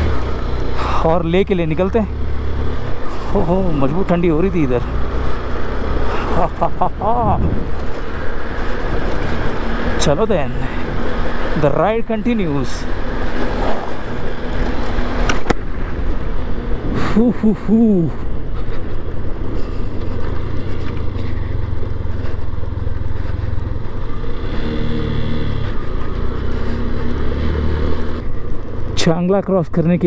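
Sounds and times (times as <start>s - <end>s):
motorcycle engine drone: 0.0s - 30.0s
wind noise on microphone: 7.0s - 9.1s.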